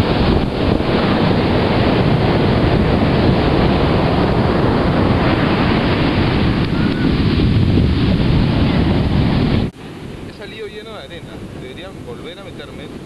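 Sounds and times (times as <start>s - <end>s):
surf washing on shore: 0.0s - 13.0s
wind buffeting microphone: 0.0s - 13.0s.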